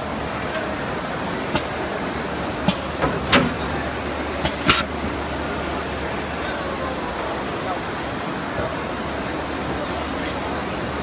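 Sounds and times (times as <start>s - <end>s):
mechanical clicks and clanks: 2.6s - 3.8s, 4.4s - 5.0s.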